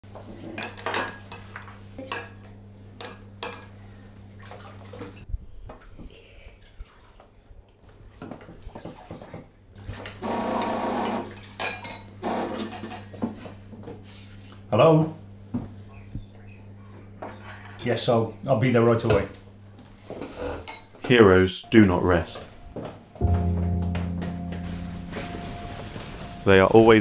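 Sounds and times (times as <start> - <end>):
phone vibrating on glass table: 10.2 - 11.3, 12.2 - 12.9
steady low hum: 21.6 - 27.0.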